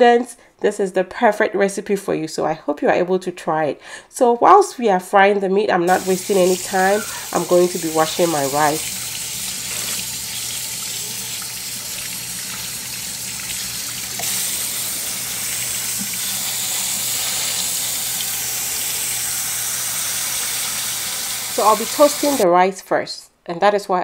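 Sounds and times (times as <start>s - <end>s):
tap water running over rice: 5.9s - 22.4s.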